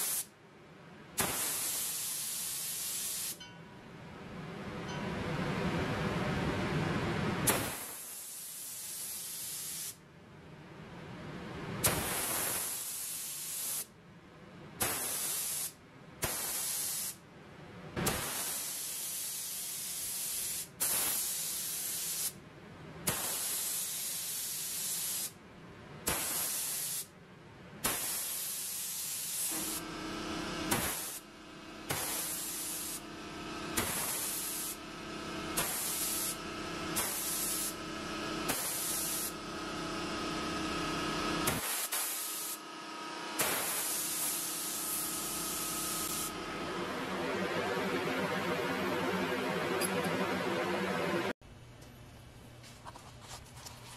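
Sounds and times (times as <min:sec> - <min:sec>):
spray gun air hissing: 0:00.0 - 0:00.3, 0:01.2 - 0:03.4, 0:07.5 - 0:10.0, 0:11.8 - 0:13.9, 0:14.8 - 0:17.2, 0:18.0 - 0:22.4, 0:23.1 - 0:25.4, 0:26.1 - 0:27.1, 0:27.8 - 0:39.5, 0:40.6 - 0:42.6, 0:43.4 - 0:46.4
steady hum: 0:29.5 - 0:41.6, 0:42.3 - 0:52.6.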